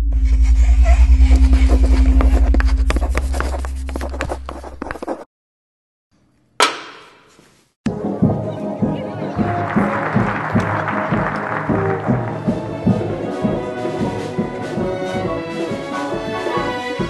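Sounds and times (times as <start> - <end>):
deep fluttering rumble: 0.0 - 4.8.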